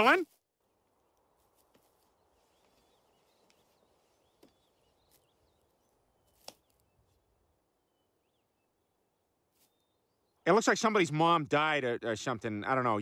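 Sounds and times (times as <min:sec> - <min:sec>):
soft bird chirps: 0:01.0 - 0:10.5.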